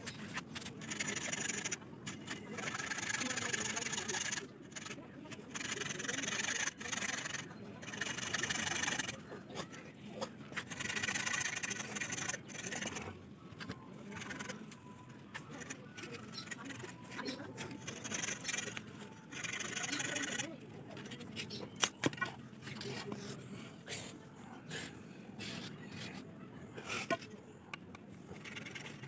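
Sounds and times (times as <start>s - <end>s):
knife scraping bamboo: 0.0s - 9.7s, 10.5s - 13.1s, 15.3s - 23.3s, 28.3s - 29.0s.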